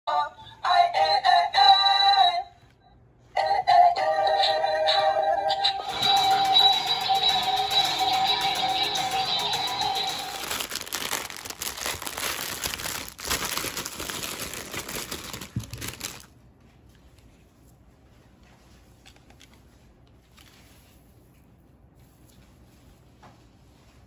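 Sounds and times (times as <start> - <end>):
toy electronic music: 3.7 - 10.6
plastic packaging crinkling: 7.6 - 16.4.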